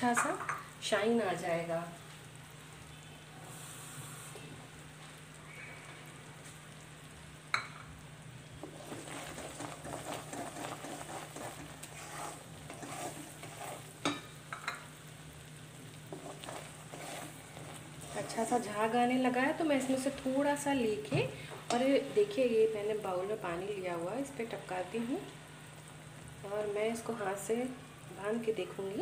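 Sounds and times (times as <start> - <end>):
syrup bubbling and sizzling: 0.0 - 29.0
spatula scraping pan: 8.6 - 14.8, 16.0 - 18.9, 19.5 - 20.3.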